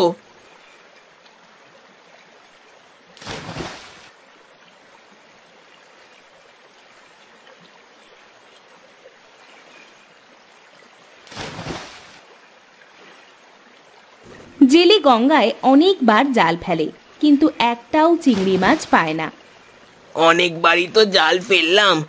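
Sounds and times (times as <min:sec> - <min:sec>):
faint flowing river: 0:00.0 - 0:22.0
cast net splashing into water: 0:03.2 - 0:04.1, 0:11.2 - 0:12.3, 0:18.2 - 0:19.4.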